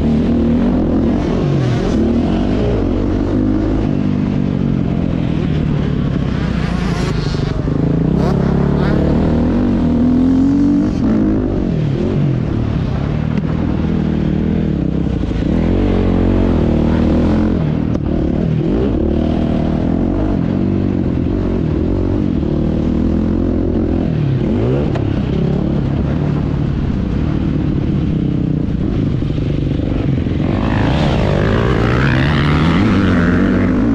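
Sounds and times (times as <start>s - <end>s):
motocross engine revving: 30.3s - 33.9s.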